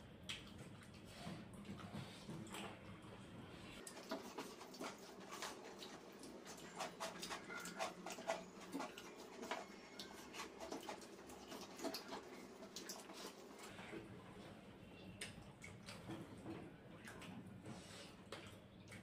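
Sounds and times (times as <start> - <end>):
fingers working rice on plates: 3.8 - 13.7.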